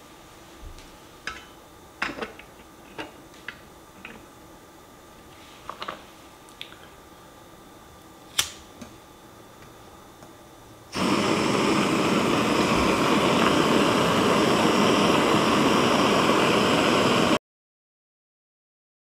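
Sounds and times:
gas stove flame rushing: 0:07.6 - 0:17.4
sharp click: 0:08.4 - 0:08.6.

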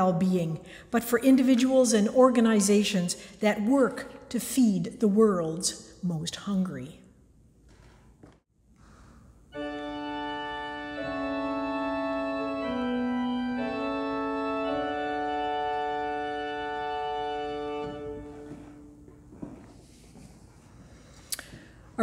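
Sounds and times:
church organ chords: 0:09.5 - 0:19.1.

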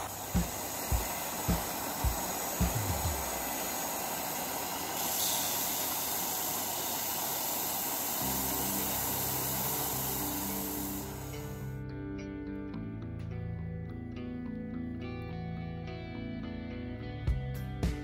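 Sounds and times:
disc sander grinding: 0:00.0 - 0:11.7
soft low thumps: 0:00.4 - 0:03.4.

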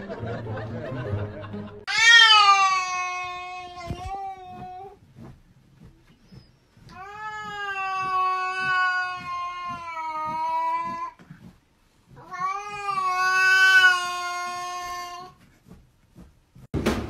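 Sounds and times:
cat yowling: 0:01.9 - 0:04.8, 0:07.0 - 0:11.1, 0:12.2 - 0:15.3.

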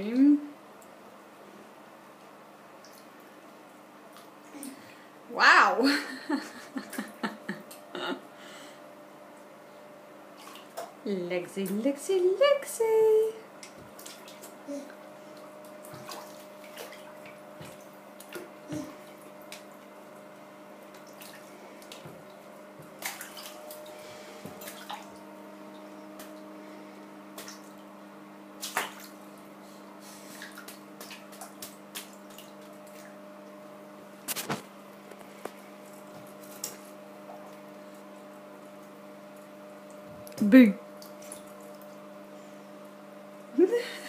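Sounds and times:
steady low hum: 0:00.0 - 0:44.0
bathwater splashing and dripping: 0:02.8 - 0:05.0, 0:10.3 - 0:12.0, 0:13.5 - 0:42.2.

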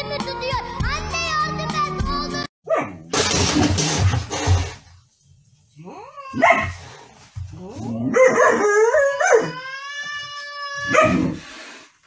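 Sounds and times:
dog howling and yelping: 0:08.1 - 0:11.4.

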